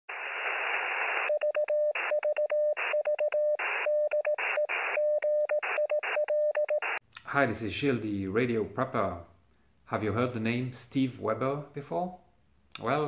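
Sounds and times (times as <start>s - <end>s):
radio static hiss: 0.1s - 1.4s, 3.6s - 5.0s
morse code tone: 1.3s - 7.0s.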